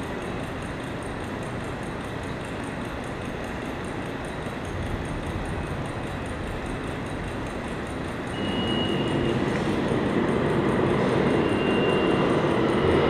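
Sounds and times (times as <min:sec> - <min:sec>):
faint regular ticking: 0:00.0 - 0:13.0
high steady tone: 0:00.0 - 0:13.0
steady rumbling: 0:03.9 - 0:13.0.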